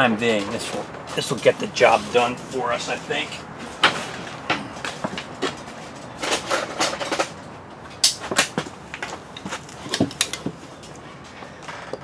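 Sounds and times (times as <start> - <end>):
tools knocking and clattering: 3.8 - 11.0.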